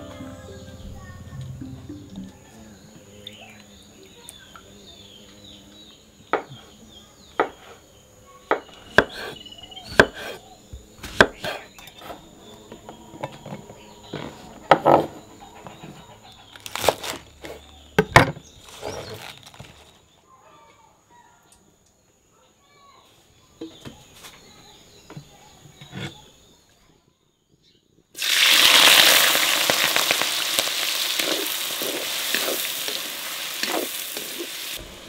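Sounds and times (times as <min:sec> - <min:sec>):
knife chopping on wooden board: 0:08.5 - 0:10.4, 0:11.0 - 0:12.2.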